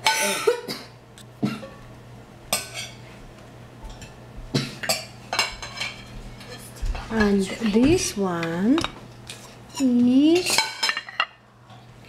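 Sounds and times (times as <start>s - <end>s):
tableware clinking on a plate: 0.0s - 0.7s, 2.5s - 3.0s, 3.9s - 11.4s.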